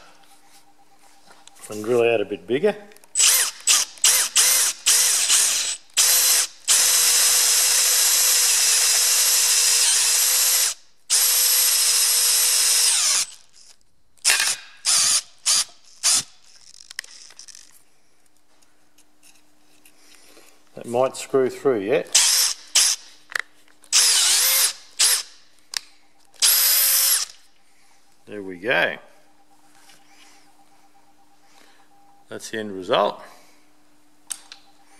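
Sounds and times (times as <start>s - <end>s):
power drill boring metal: 3.2s - 16.3s, 22.2s - 23.0s, 23.9s - 25.3s, 26.4s - 27.4s.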